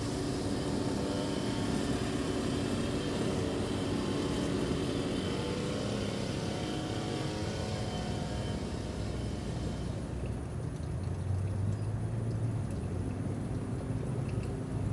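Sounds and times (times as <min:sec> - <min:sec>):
road traffic hum: 0:00.0 - 0:14.9.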